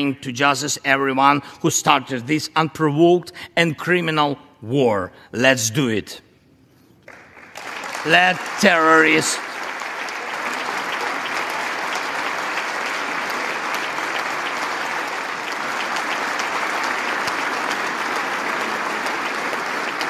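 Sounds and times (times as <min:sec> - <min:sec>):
large audience applauding: 0:07.0 - 0:20.0.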